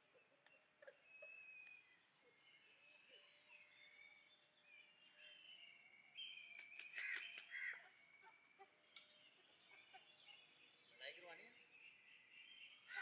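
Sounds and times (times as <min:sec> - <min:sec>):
faint birdsong: 0:00.0 - 0:13.0
harsh bird calls: 0:05.0 - 0:13.0.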